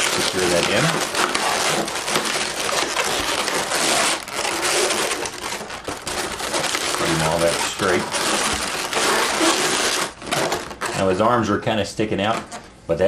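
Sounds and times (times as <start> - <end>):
balloons squeaking and creaking: 0.0 - 13.0.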